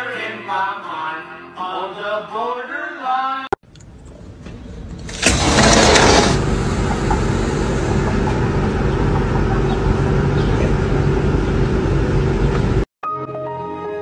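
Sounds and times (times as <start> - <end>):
steady mechanical hum: 3.7 - 12.8.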